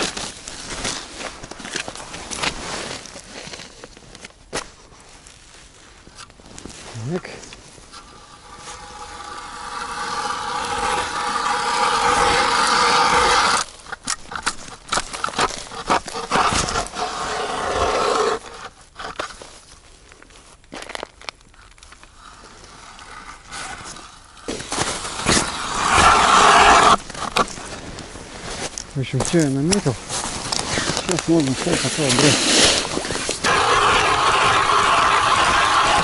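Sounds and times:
ice auger grinding through ice: 7.9 - 13.7, 14.3 - 18.8, 22.3 - 27.4, 30.5 - 36.0
sharp knocks and scrapes: 7.9 - 19.3.

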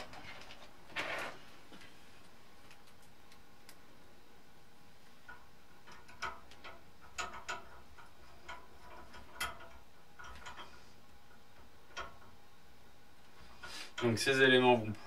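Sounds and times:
small mounting parts clicking: 5.3 - 12.4.

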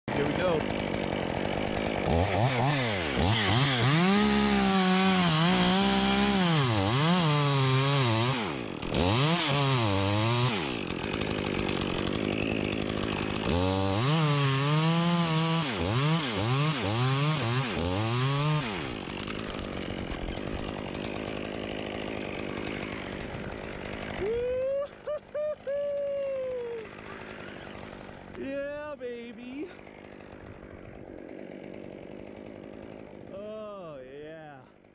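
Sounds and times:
chainsaw cutting tree trunk: 0.1 - 34.9.

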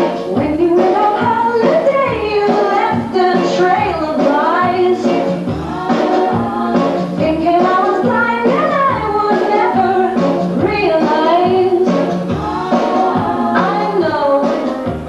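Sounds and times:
voices singing a melody: 0.0 - 14.8
band accompaniment: 0.0 - 15.0.

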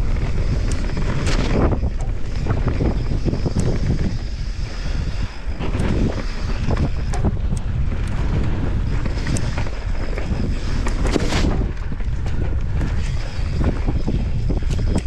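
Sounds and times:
bike clicks and rattles: 0.0 - 15.0
wind buffeting microphone: 0.0 - 15.0.

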